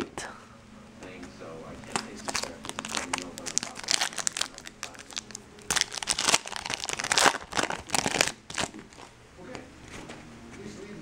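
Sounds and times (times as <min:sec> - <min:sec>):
foil wrapper tearing and crinkling: 0:01.9 - 0:09.1.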